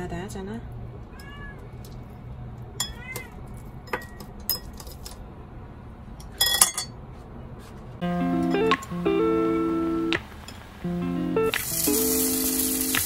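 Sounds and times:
cat meowing: 1.1s - 1.8s, 2.9s - 3.5s.

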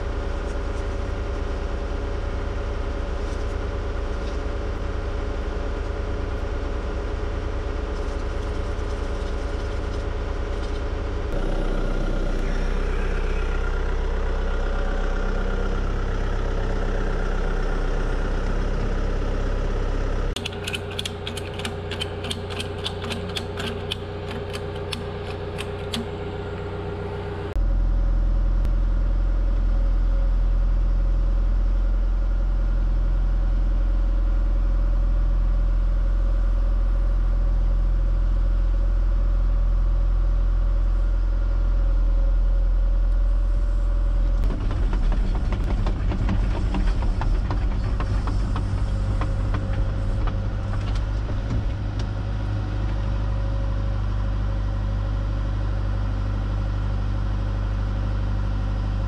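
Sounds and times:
diesel engine running: 0.0s - 59.0s
machine rattling and clanking: 44.3s - 53.6s.

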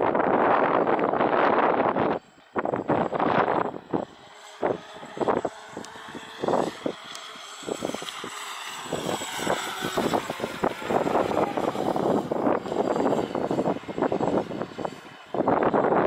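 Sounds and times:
high motor whine: 0.0s - 16.0s
hull rushing through spray: 1.2s - 16.0s.

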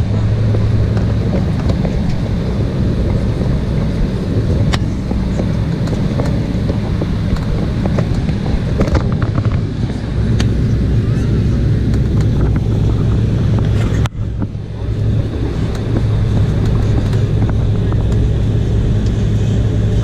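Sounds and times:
aircraft rolling: 0.0s - 20.0s
airliner engines droning: 0.0s - 20.0s.

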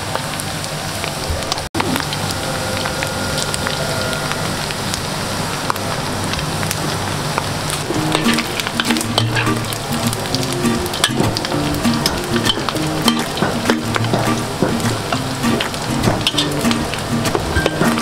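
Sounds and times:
meat deep-frying in oil: 0.0s - 18.0s
metal spatula stirring in wok: 8.0s - 18.0s.

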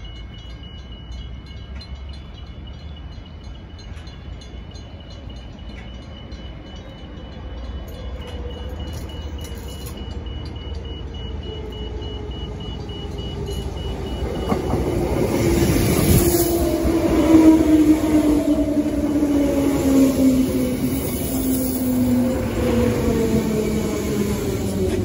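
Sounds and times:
level-crossing warning bell: 0.0s - 25.0s.

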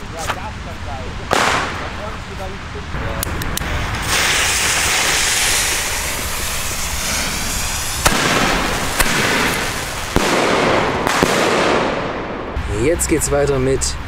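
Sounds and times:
fireworks banging in sky: 1.3s - 2.1s, 3.8s - 12.6s
firework fuses hissing: 3.3s - 12.0s.

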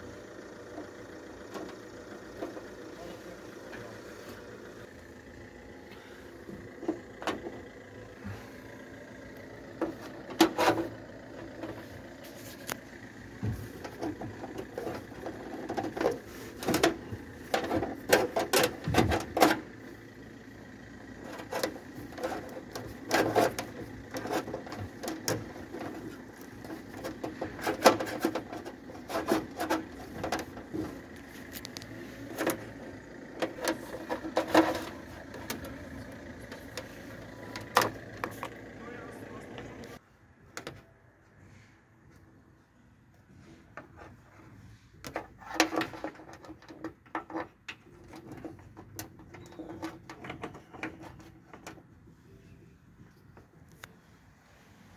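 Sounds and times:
cable tapping and rustling on sheet metal: 13.4s - 19.7s, 21.3s - 32.7s, 33.4s - 38.5s, 45.0s - 51.9s.

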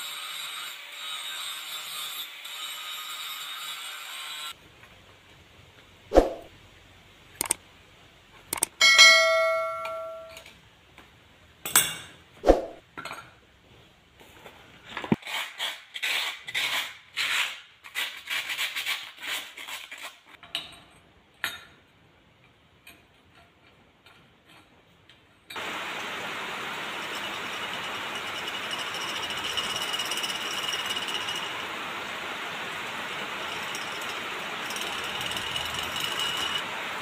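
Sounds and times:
metal clinks and knocks: 8.6s - 10.6s, 33.4s - 36.6s.

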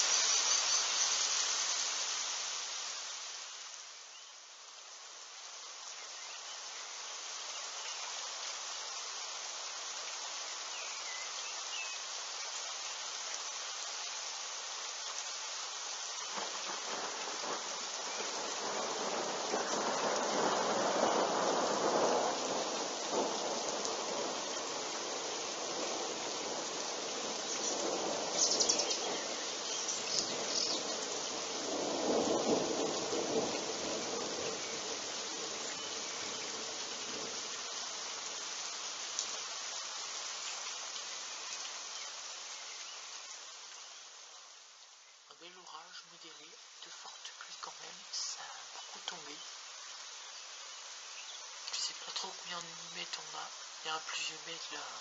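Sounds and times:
rain hissing: 0.0s - 55.0s
thunder rumble: 16.3s - 29.4s, 30.0s - 37.4s.

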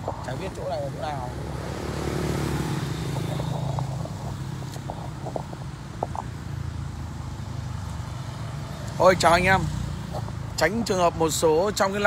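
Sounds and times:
traffic noise: 0.0s - 12.0s
motorbike engine passing: 0.8s - 5.6s.

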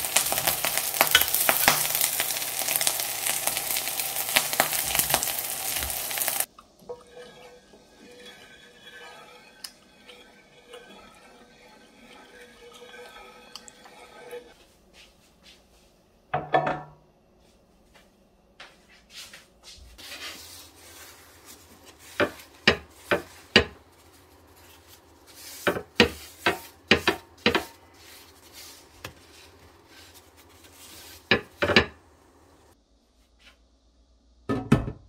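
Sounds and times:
paper towel rubbing grill plate: 19.1s - 31.8s.

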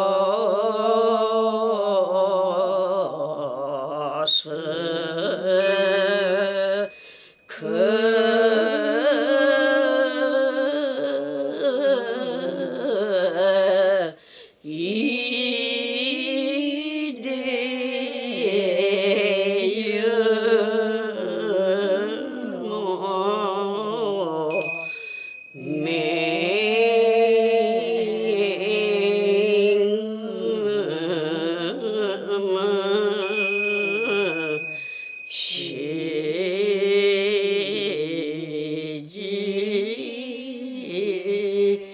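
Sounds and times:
small bell ringing: 5.6s - 7.6s, 15.0s - 15.6s, 24.5s - 27.3s, 33.0s - 37.6s.

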